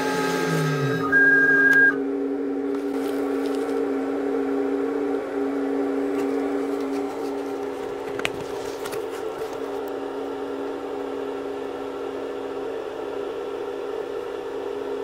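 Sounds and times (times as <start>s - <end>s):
mill spindle winding down: 0.0s - 8.9s
steady electrical hum: 0.0s - 15.0s
loud beep: 0.4s - 2.0s.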